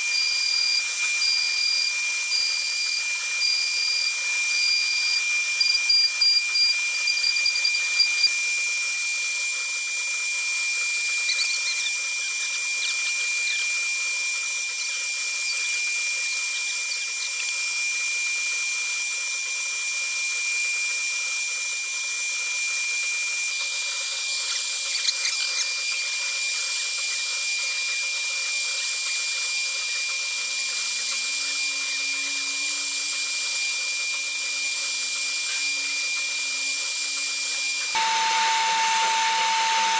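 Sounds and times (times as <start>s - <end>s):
router spindle whine: 0.0s - 39.9s
bit cutting board hiss: 38.0s - 39.9s.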